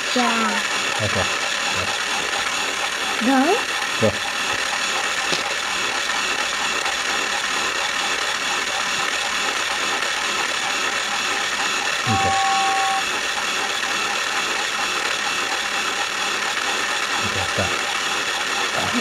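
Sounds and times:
toy train motor whirring: 0.0s - 19.0s
brief high tone: 12.1s - 13.0s.

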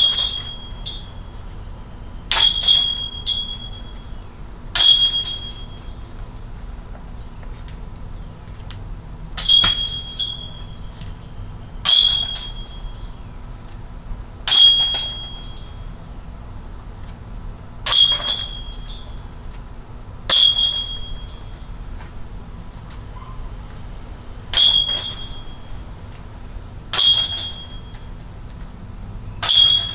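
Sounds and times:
discs clanging on metal target: 0.0s - 1.2s, 2.3s - 4.0s, 4.8s - 6.0s, 9.4s - 13.2s, 14.4s - 15.9s, 17.9s - 19.2s, 20.3s - 21.7s, 24.5s - 25.8s, 26.9s - 28.1s, 29.4s - 29.9s.

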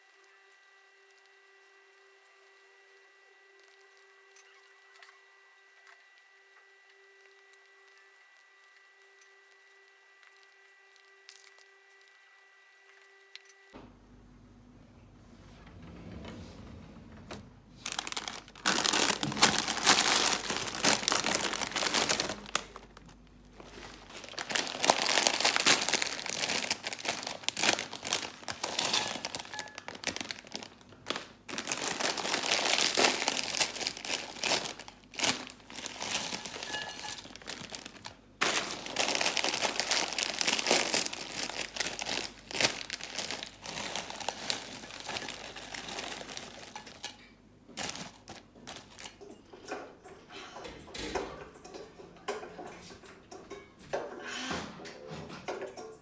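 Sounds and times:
crinkling and rustling: 15.5s - 50.2s.

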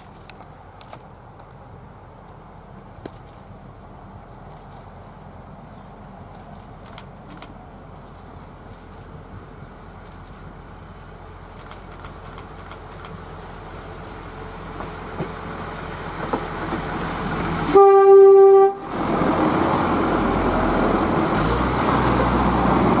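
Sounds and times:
diesel train passing: 0.0s - 23.0s
train horn blast: 17.6s - 19.0s.

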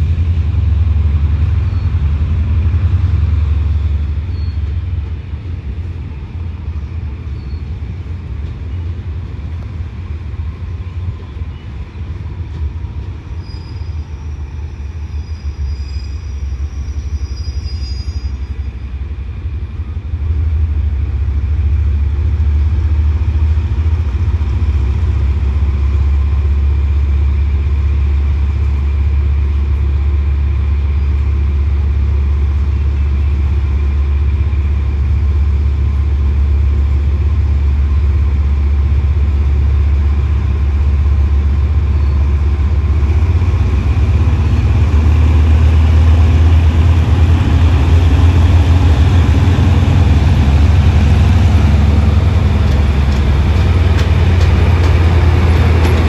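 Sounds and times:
locomotive engine rumble: 0.0s - 56.0s.

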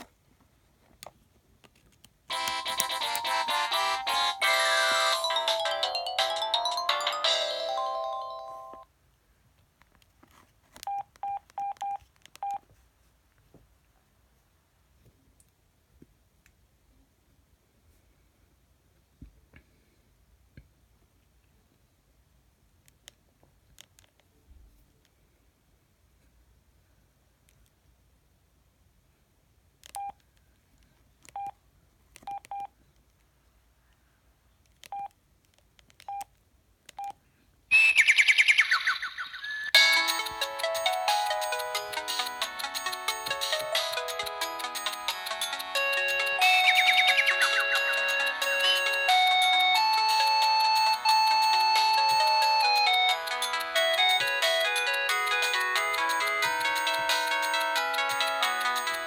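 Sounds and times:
phone power-on melody: 2.3s - 8.8s, 39.8s - 58.8s
phone keypad beeps: 10.9s - 12.6s, 29.9s - 30.2s, 31.3s - 31.6s, 32.3s - 32.7s, 34.9s - 35.1s, 37.0s - 37.2s.

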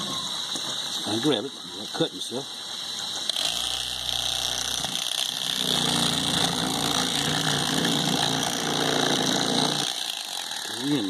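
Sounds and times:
electric fillet knife motor whine: 3.3s - 11.0s.

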